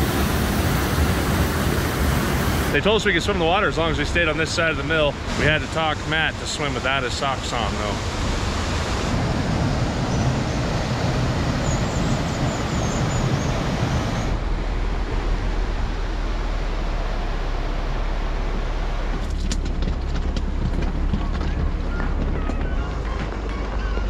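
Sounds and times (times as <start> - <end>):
waterfall roaring: 0.0 - 23.5
vehicle driving over rocks: 19.1 - 24.0
sharp clicks and knocks: 19.2 - 23.8.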